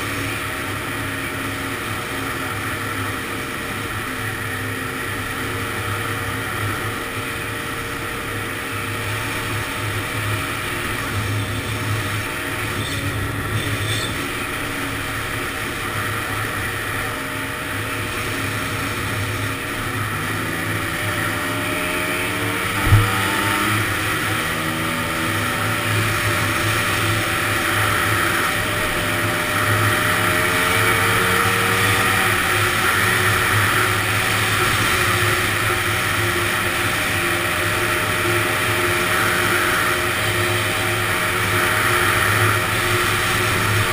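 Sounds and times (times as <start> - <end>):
two-stroke engine running: 0.0 - 43.9
sharp thump: 22.8 - 23.6.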